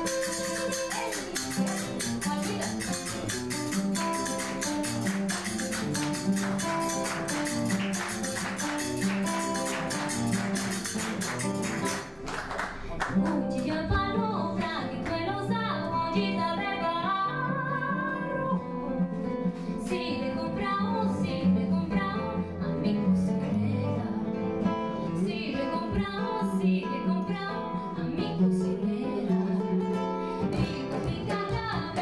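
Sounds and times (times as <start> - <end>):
woman singing: 0.0 - 3.0, 13.2 - 18.8, 19.8 - 32.0
hand strikes on a cajon: 0.0 - 12.2, 30.5 - 32.0
classical guitar playing: 0.0 - 32.0.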